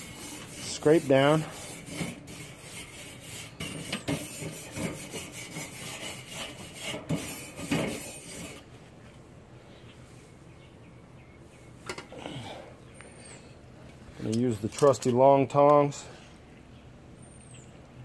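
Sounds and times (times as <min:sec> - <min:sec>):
grill brush scraping metal grate: 0:00.0 - 0:08.7.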